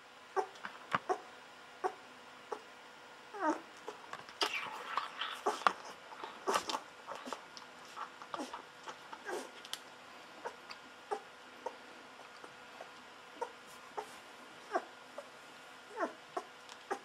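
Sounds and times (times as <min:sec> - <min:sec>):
puppy whimpering: 0:00.4 - 0:02.7, 0:03.3 - 0:07.4, 0:08.3 - 0:09.6, 0:10.4 - 0:15.3, 0:15.9 - 0:17.0.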